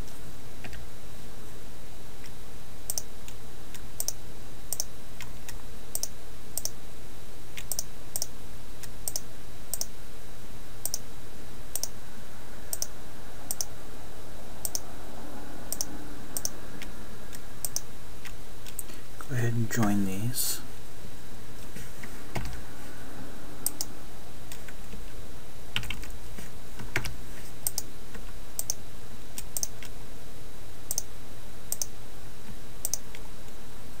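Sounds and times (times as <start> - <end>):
low electrical hum: 0.0 - 34.0
computer mouse clicking: 2.2 - 6.8, 7.6 - 8.3, 9.0 - 9.9, 10.8 - 11.0, 11.8 - 12.0, 12.7 - 12.9, 13.5 - 13.7, 14.6 - 14.8, 15.7 - 16.6, 17.3 - 18.9, 23.7 - 23.9, 26.8 - 27.9, 28.6 - 28.8, 29.4 - 29.9, 30.9 - 31.1, 31.7 - 31.9, 32.8 - 33.2.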